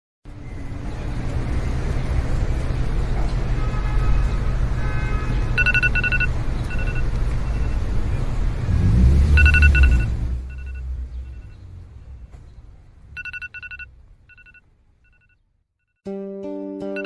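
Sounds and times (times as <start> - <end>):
phone alarm beeping: 5.6 - 7.9, 9.4 - 11.5, 13.2 - 15.4
deep steady rumble: 8.7 - 14.4.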